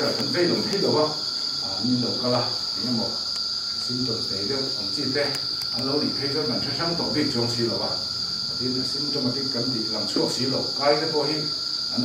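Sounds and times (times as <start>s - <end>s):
crickets chirring: 0.0s - 12.0s.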